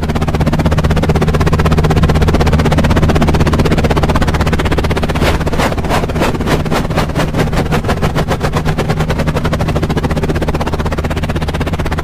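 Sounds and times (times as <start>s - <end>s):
toy helicopter motor clattering: 4.8s - 10.3s.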